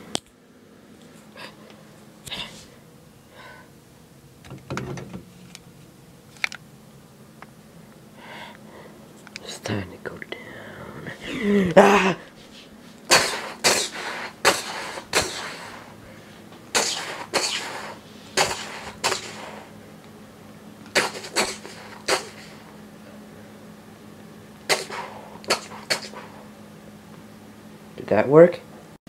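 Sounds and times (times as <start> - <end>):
airsoft pistol shots: 16.8 - 19.6, 21.0 - 22.5, 24.7 - 26.2.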